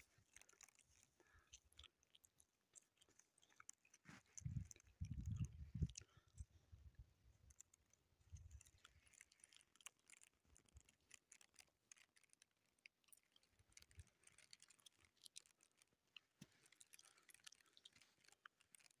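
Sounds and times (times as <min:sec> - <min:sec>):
soft low thumps: 0:04.4 - 0:06.0.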